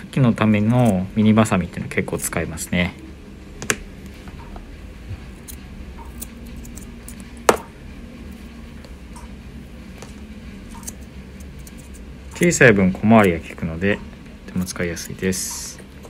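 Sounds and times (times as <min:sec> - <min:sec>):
faint steady hum: 0:00.0 - 0:16.0
scissors blades clicking: 0:05.4 - 0:07.2, 0:10.6 - 0:12.0.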